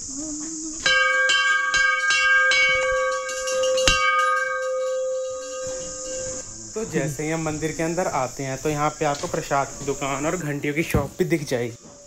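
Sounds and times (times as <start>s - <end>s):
insects droning: 0.0s - 12.0s
temple bell ringing: 0.8s - 6.4s.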